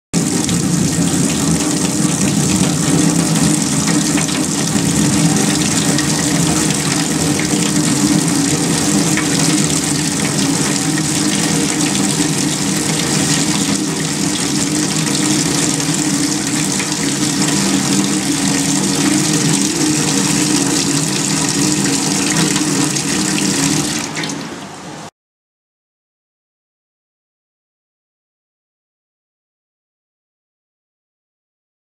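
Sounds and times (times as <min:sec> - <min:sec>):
tap water pouring into steel sink: 0:00.2 - 0:24.7.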